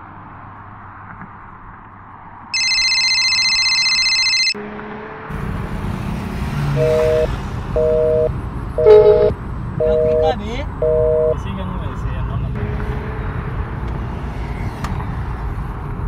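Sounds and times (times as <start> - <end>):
mobile phone ringtone: 2.6 - 4.6, 6.8 - 11.4
two-note phone tone: 2.6 - 4.6, 6.8 - 11.4
car cabin hum: 6.8 - 11.4.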